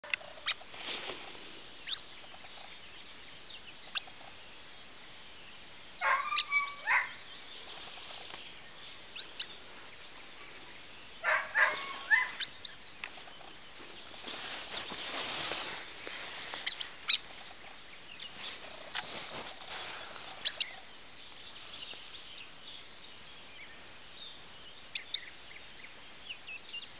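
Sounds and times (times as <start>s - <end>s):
small birds chirping: 0.0s - 26.9s
louder lower bird calls: 6.0s - 7.3s, 11.2s - 12.9s, 16.5s - 17.3s, 19.7s - 20.9s, 24.9s - 25.4s.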